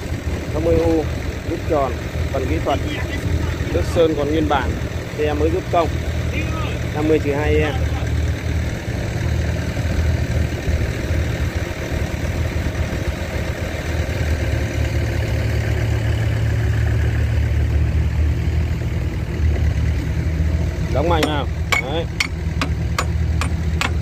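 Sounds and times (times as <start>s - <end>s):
diesel engine idling: 0.0s - 24.0s.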